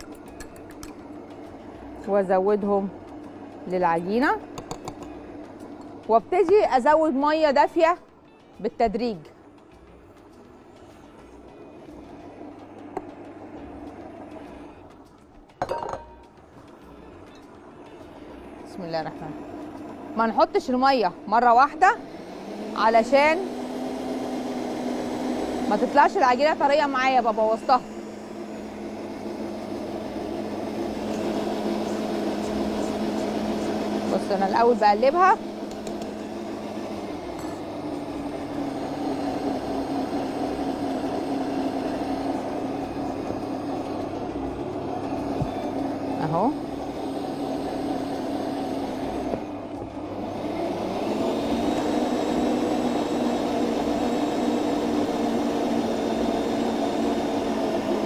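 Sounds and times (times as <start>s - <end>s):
stand mixer motor humming: 11.6s - 14.9s, 17.6s - 58.0s.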